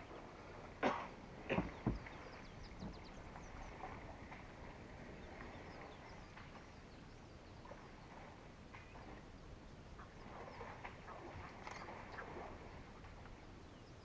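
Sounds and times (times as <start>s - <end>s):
faint bird chirps: 5.1s - 14.0s.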